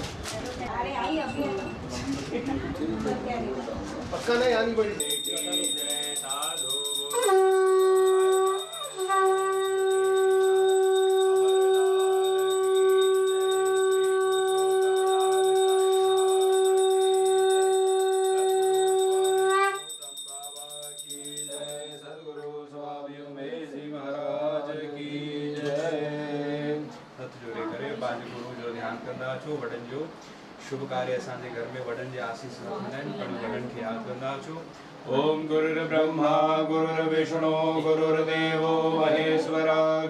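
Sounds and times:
quiet wavering music or singing: 5.8s - 28.3s.

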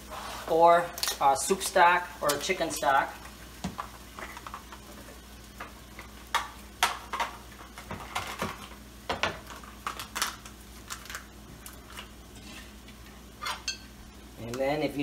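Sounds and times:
dishes and utensils clinking: 13.4s - 13.9s.

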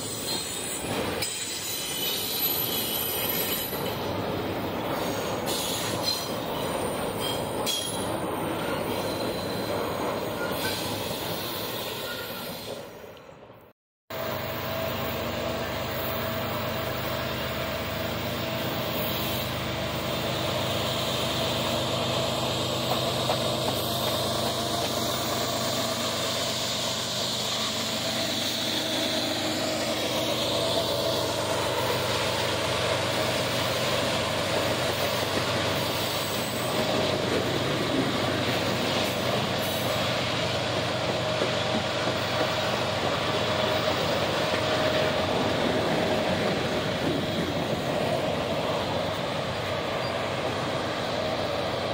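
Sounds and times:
diesel locomotive engine drone: 0.0s - 51.9s
freight cars rolling on rails: 14.2s - 51.9s.

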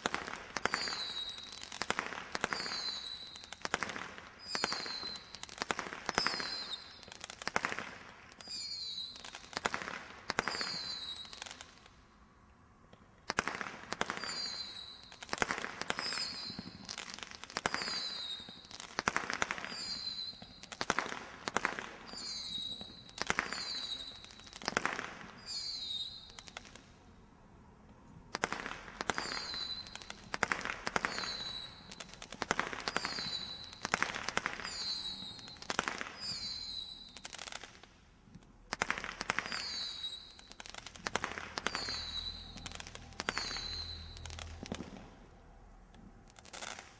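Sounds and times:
firework sharp pops: 0.0s - 12.0s, 12.9s - 27.1s, 27.8s - 46.9s
high falling whistle: 4.4s - 5.4s, 8.4s - 9.3s, 10.4s - 11.4s, 14.2s - 15.1s, 15.9s - 16.8s, 19.6s - 20.6s, 22.1s - 24.2s, 25.4s - 26.4s, 29.1s - 30.0s, 31.0s - 32.0s, 32.9s - 33.9s, 34.6s - 37.3s, 41.6s - 44.7s.

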